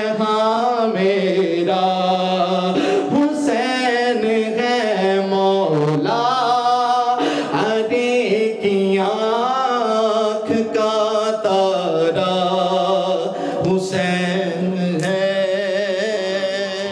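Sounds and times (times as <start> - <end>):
man singing into a microphone: 0.0 - 16.9.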